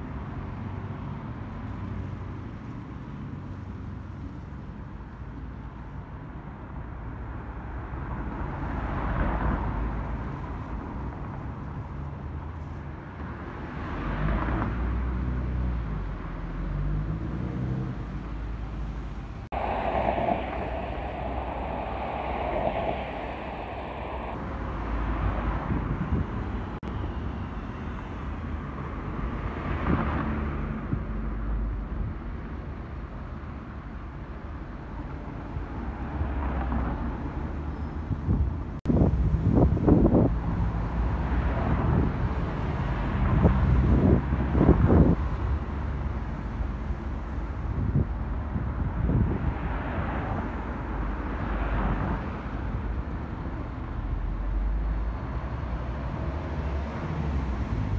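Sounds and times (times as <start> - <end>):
cars driving past: 7.3 - 26.8.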